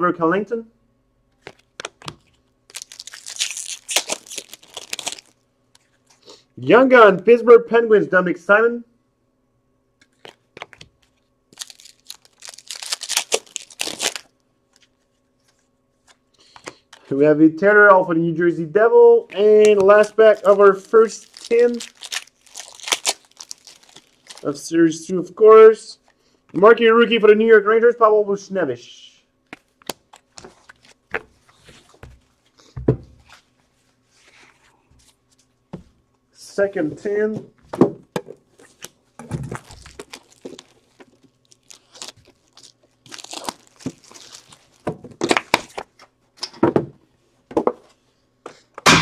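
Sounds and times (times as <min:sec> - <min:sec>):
foil wrapper crinkling and tearing: 0:01.4 - 0:05.4, 0:10.1 - 0:15.0, 0:19.9 - 0:24.5, 0:38.5 - 0:45.8.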